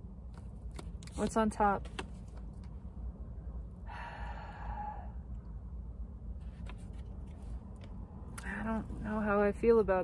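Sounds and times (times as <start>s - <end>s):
low steady hum: 0.0s - 10.0s
person sighing: 3.8s - 5.2s.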